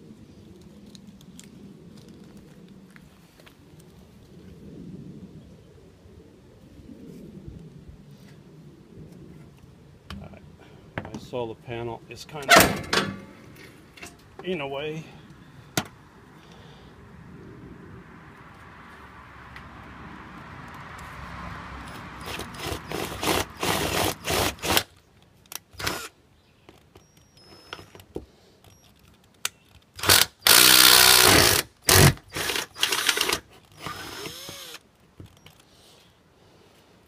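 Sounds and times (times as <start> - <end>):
cordless drill grinding into metal: 25.8 - 26.1, 30.0 - 34.8.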